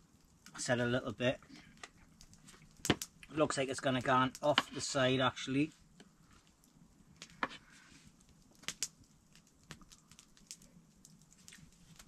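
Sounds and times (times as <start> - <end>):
faint sharp clicks and taps: 6.0 - 7.6, 8.2 - 12.0.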